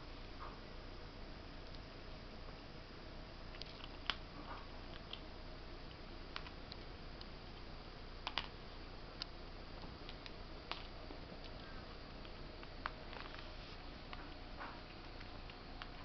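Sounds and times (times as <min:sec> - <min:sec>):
squirrel teeth cracking kernels: 0:03.5 - 0:05.3, 0:05.9 - 0:08.6, 0:14.0 - 0:16.0.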